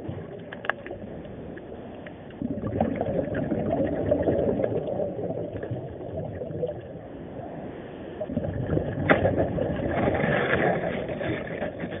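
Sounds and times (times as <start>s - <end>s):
muffled underwater water noise: 0.0s - 12.0s.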